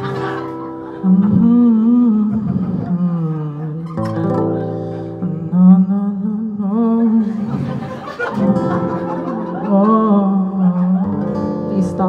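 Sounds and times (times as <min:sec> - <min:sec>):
acoustic guitar: 0:00.0 - 0:12.0
person singing slowly: 0:01.0 - 0:07.6, 0:09.6 - 0:12.0.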